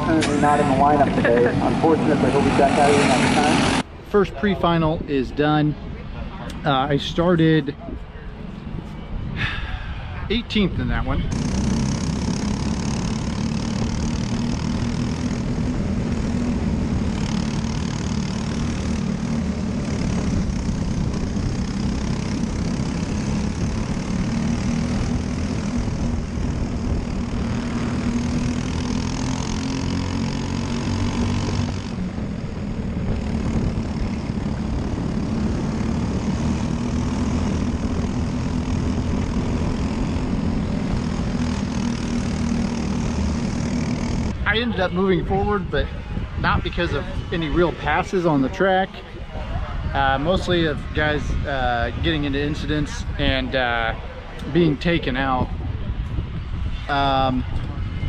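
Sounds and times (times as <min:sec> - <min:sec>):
kart engine running: 0:00.0 - 0:05.6, 0:10.3 - 0:58.0.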